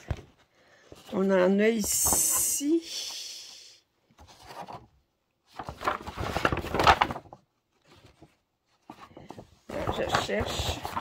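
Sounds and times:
paper pages rustling: 0:04.1 - 0:11.0.

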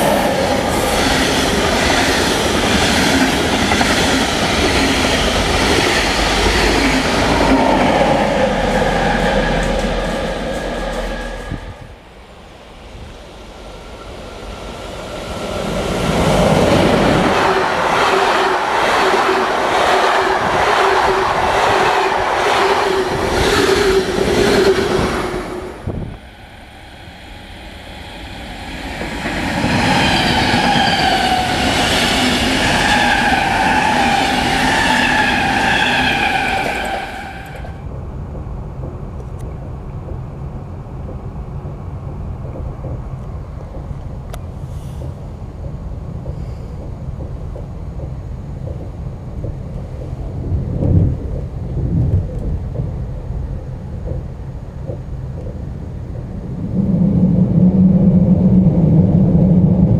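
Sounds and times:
passing train whine: 0:00.0 - 0:59.9
rumble inside moving train: 0:00.0 - 0:59.9
train wheel clicks: 0:41.0 - 0:55.7.

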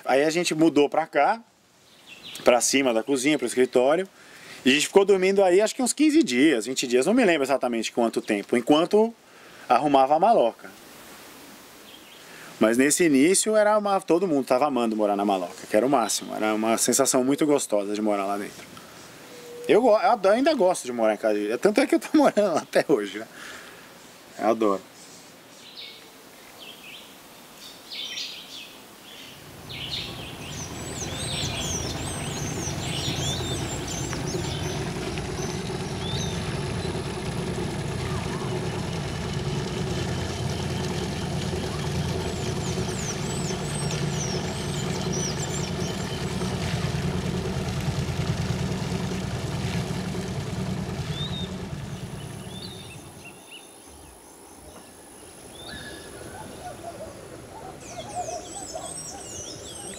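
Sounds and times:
birds chirping: 0:01.9 - 0:04.9, 0:18.3 - 0:20.1, 0:23.9 - 0:59.9
boat engine chugging: 0:29.4 - 0:53.2.

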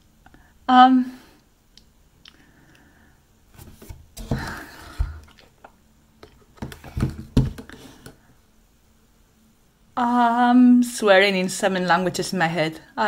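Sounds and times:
plastic cup knocks and rustles: 0:06.4 - 0:08.2.

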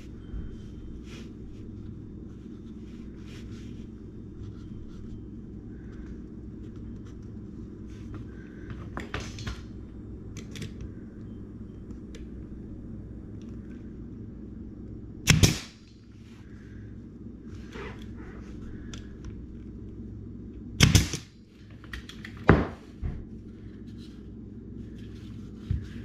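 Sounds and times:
low hum: 0:00.0 - 0:26.0
nail gun firing: 0:15.3 - 0:15.8, 0:20.8 - 0:21.3.

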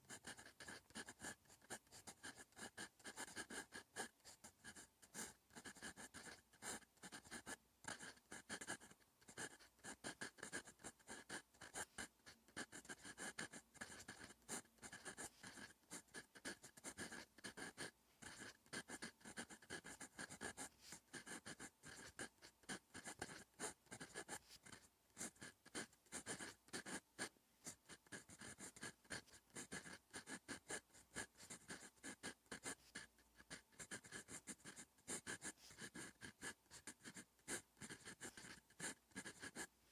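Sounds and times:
pen nib scratching on paper: 0:00.0 - 0:39.9.

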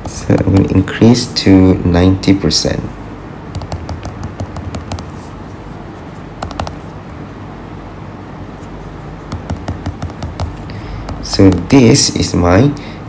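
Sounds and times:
steady low hum: 0:00.0 - 0:13.0
stylus tapping on tablet screen: 0:03.5 - 0:05.3, 0:06.4 - 0:06.9, 0:09.3 - 0:11.7.

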